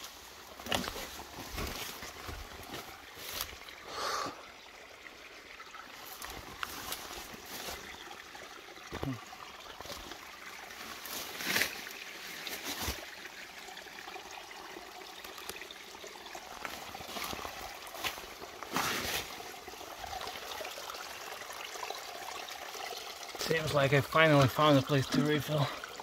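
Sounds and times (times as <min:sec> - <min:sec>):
leaves rustling: 0:00.0 - 0:03.7, 0:06.0 - 0:07.9, 0:09.8 - 0:13.2, 0:16.6 - 0:19.6
spring water trickling: 0:00.0 - 0:26.0.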